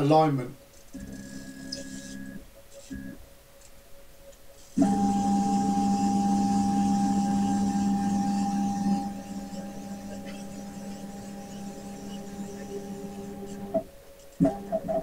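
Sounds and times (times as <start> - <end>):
motor whine: 0.9 - 3.2, 4.7 - 15.0
low hum: 4.8 - 15.0.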